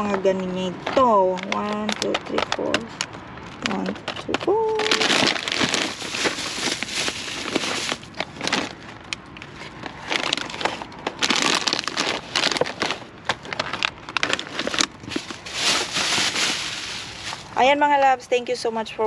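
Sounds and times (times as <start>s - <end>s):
plastic bags rustling: 0.8s - 18.0s
packages knocking down: 4.1s - 8.7s, 13.7s - 17.6s.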